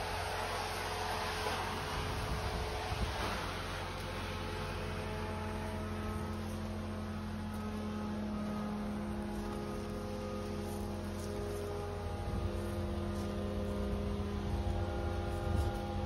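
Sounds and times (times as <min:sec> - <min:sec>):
tanker engine and pump droning: 0:00.0 - 0:16.0.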